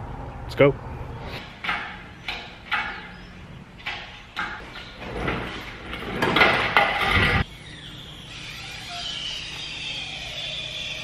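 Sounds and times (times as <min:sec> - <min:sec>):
rolling and scraping noise: 0:01.3 - 0:07.5
metal clanks: 0:01.4 - 0:07.5.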